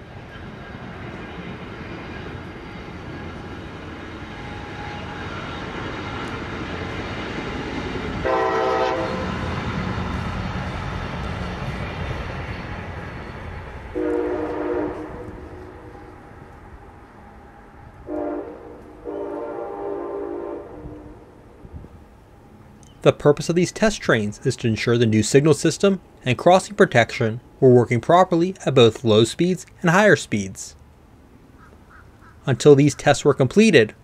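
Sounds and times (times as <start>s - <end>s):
train passing rumble: 0.0s - 34.0s
train horn blasts: 8.2s - 9.5s, 13.9s - 16.2s, 18.0s - 21.4s.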